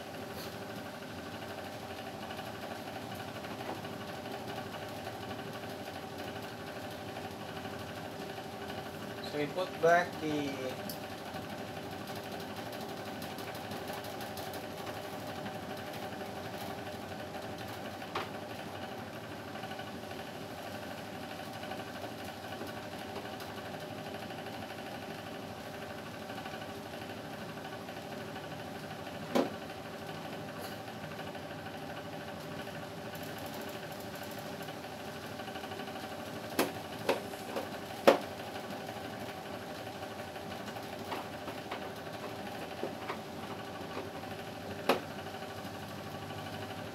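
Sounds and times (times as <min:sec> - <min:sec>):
air conditioner humming: 0:00.0 - 0:46.9.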